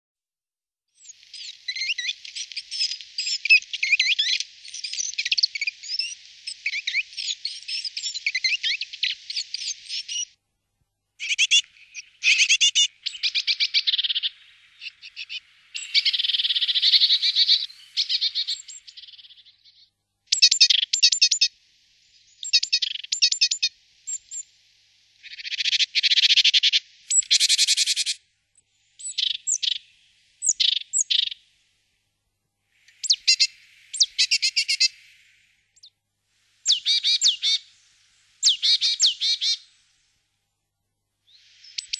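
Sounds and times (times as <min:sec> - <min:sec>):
great tit chattering calls: 0:01.4 - 0:10.3, 0:11.2 - 0:19.4, 0:20.3 - 0:21.5, 0:22.2 - 0:24.4, 0:25.2 - 0:28.2, 0:29.0 - 0:31.4, 0:32.9 - 0:35.2, 0:36.6 - 0:37.6, 0:38.4 - 0:39.6, 0:41.3 - 0:41.9.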